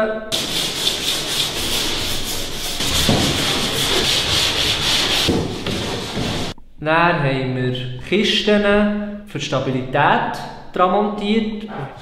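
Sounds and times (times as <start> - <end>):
sanding sponge rubbing wood: 0.3 - 6.6.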